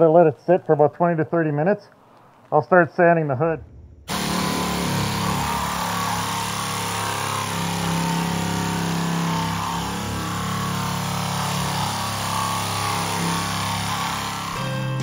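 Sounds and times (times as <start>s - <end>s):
air orbital sander on sheet metal: 4.1s - 15.0s.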